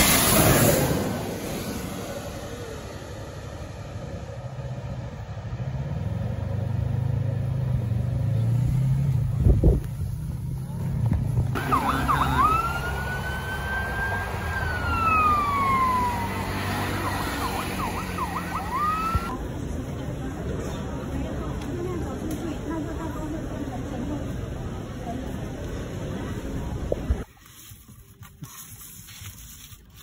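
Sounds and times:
jet engine rumble: 0.0 - 5.8
jet engine whine: 0.0 - 6.2, 11.6 - 19.4.

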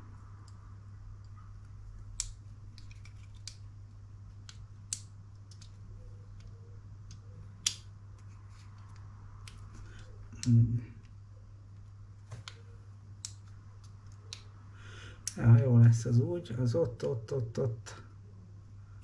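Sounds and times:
low steady hum: 0.0 - 19.0
plastic parts clicking: 4.3 - 11.2.

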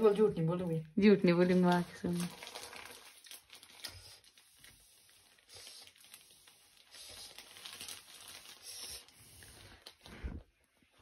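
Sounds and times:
rustling and crinkling: 0.0 - 11.0.

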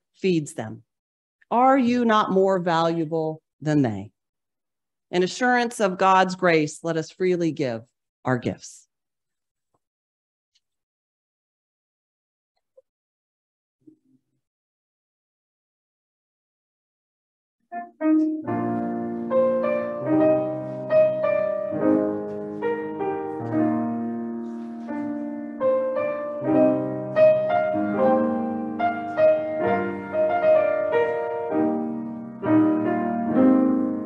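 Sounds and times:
grand piano chords: 17.7 - 34.0.

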